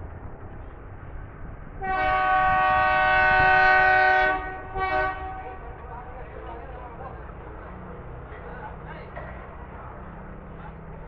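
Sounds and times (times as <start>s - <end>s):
locomotive engine rumble: 0.0s - 11.0s
locomotive air horn: 1.8s - 5.6s.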